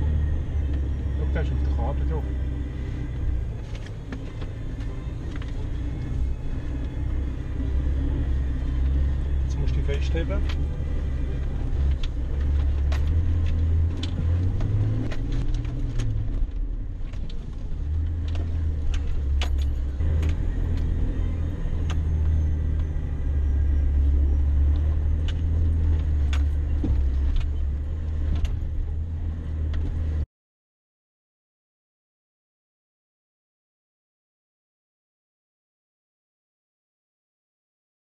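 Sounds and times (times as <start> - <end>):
diesel engine droning: 0.0 - 30.3
clicks and rattles of vehicle load: 11.8 - 20.9, 24.7 - 29.0.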